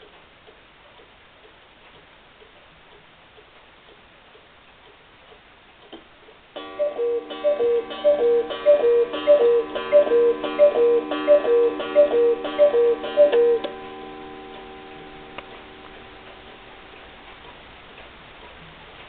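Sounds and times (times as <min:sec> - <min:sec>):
clock ticking: 0:06.3 - 0:19.0
cuckoo clock calls: 0:06.6 - 0:15.3.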